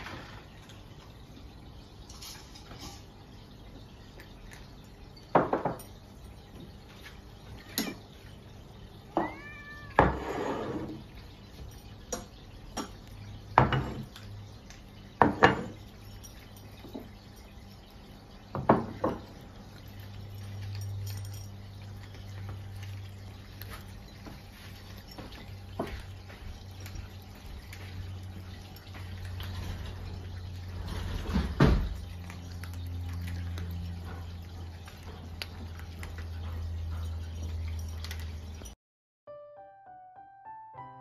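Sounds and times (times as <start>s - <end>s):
cat meowing: 9.1s - 10.3s
bowls clunking on wooden table: 13.6s - 14.1s.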